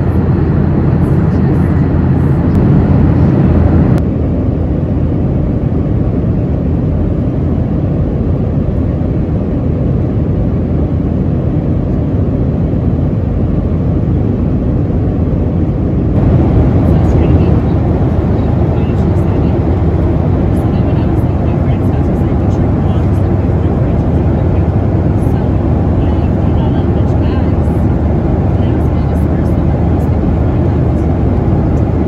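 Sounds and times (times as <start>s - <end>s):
airplane cabin engine noise: 0.0s - 32.0s.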